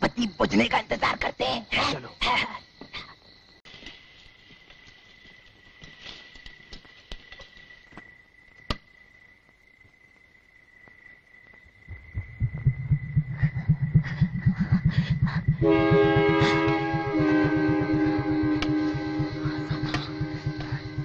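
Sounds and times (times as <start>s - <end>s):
low pounding pulse: 11.9s - 21.0s
thin steady high tone: 11.9s - 21.0s
sustained music notes: 12.7s - 21.0s.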